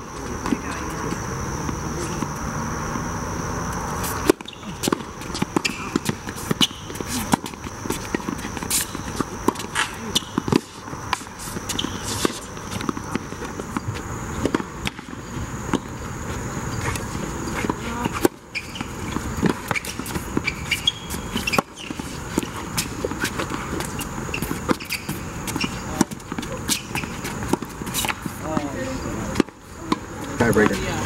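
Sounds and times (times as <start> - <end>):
sneaker steps and scuffs: 0.1 - 30.9
tennis ball hit by rackets: 4.0 - 15.9, 16.8 - 28.4
ball bouncing on hard court: 4.1 - 16.0.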